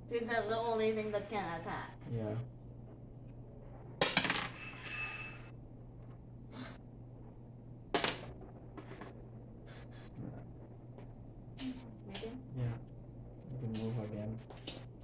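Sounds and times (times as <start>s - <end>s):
dice clattering on table: 4.0s - 4.6s, 7.9s - 9.1s.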